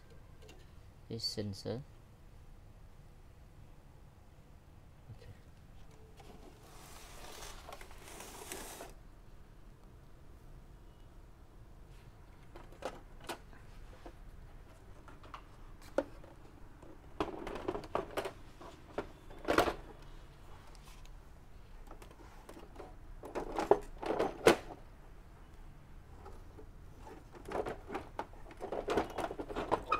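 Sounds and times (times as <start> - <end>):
printer parts clicking and clattering: 12.4 - 13.5, 14.1 - 20.1, 21.8 - 24.8, 26.2 - 29.9.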